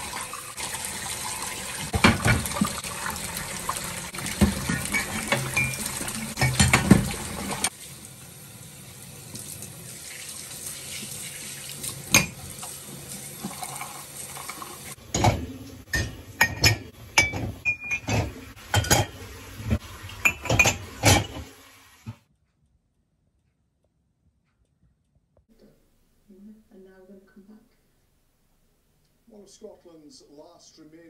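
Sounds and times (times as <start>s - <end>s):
tap water running into a sink: 0.0s - 16.5s, 17.3s - 22.2s
crockery clinking and knocking: 1.9s - 2.6s, 4.3s - 7.7s, 15.1s - 19.2s, 20.2s - 21.5s.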